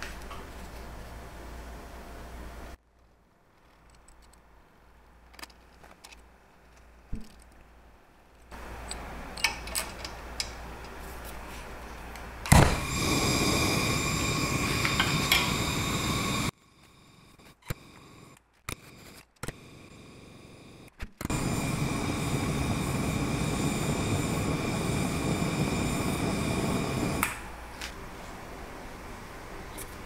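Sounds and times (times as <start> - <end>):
gas torch hissing: 12.5 - 27.6.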